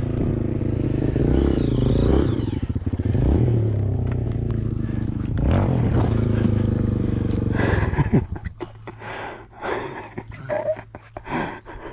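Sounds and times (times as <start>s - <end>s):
dirt bike engine idling: 0.0s - 11.8s
person breathing hard: 4.7s - 5.4s, 7.5s - 8.0s, 8.8s - 11.9s.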